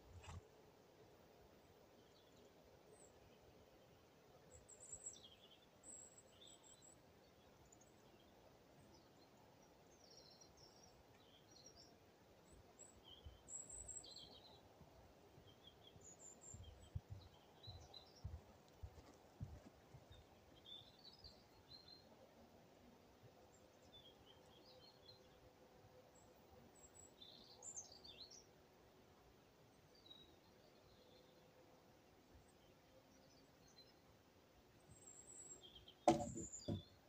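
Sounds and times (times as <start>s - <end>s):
birds chirping: 15.4s - 22.1s, 34.9s - 37.0s
low dull thuds: 36.1s - 36.9s.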